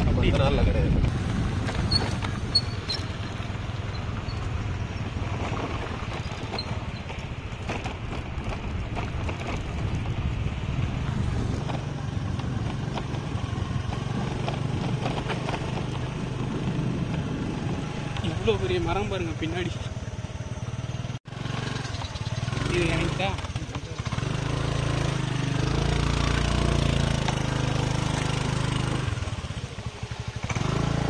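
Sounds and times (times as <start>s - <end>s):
wind noise: 0.0s - 18.5s
scooter engine running: 0.0s - 31.0s
knocks and rattles over bumps: 0.9s - 19.1s, 21.5s - 29.5s.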